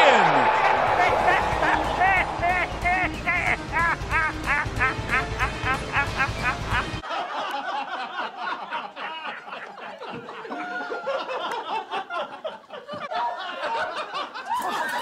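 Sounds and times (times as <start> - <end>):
people laughing: 0.0 - 15.0.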